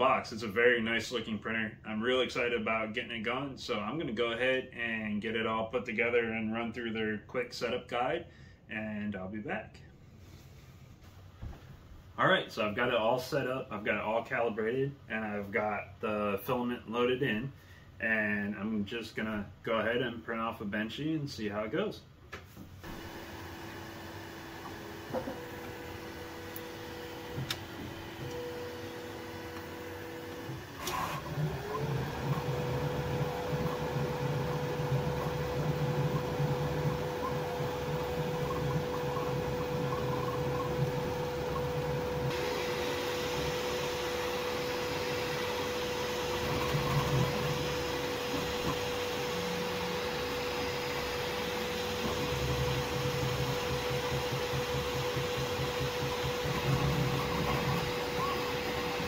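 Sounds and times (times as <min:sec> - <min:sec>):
fan hum: 0:09.2 - 0:59.0
low buzz of print head: 0:22.8 - 0:59.0.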